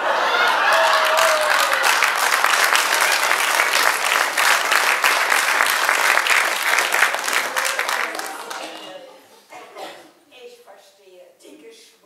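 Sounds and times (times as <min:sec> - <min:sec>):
audience applauding: 0:00.0 - 0:09.0.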